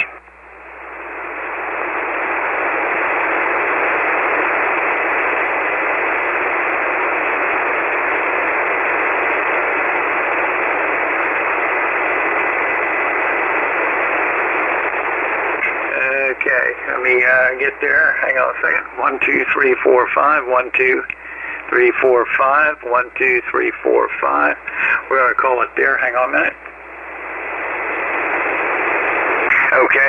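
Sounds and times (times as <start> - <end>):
radio static hiss: 0.0 - 30.0.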